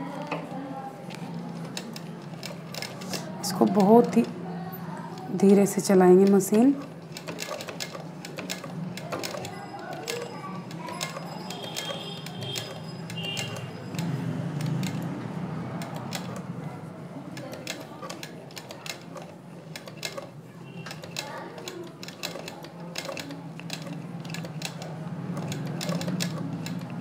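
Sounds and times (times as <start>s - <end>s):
sewing machine needle clicking: 1.1s - 4.3s, 5.1s - 15.1s, 15.8s - 16.5s, 17.3s - 27.0s
sewing machine low hum: 6.1s - 27.0s.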